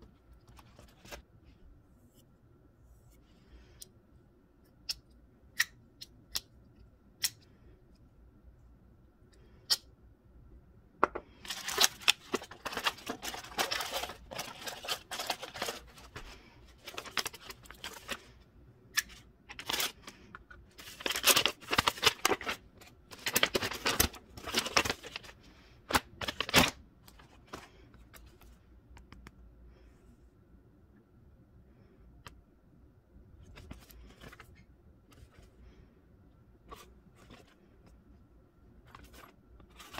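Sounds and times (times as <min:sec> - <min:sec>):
packaging rustling and crinkling: 0:11.4 - 0:18.3, 0:19.0 - 0:27.7, 0:38.8 - 0:39.9.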